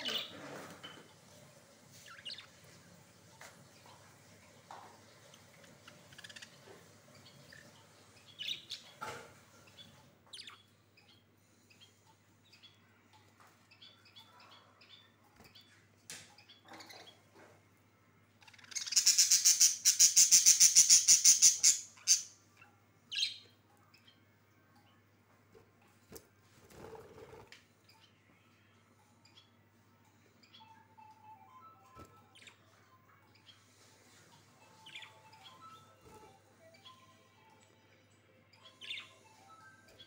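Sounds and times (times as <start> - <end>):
budgerigars chirping: 18.4 - 22.3.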